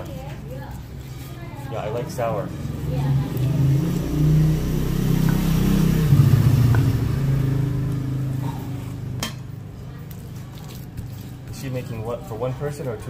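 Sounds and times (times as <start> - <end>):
people talking: 0.0 - 3.8
vehicle engine revving: 2.4 - 9.6.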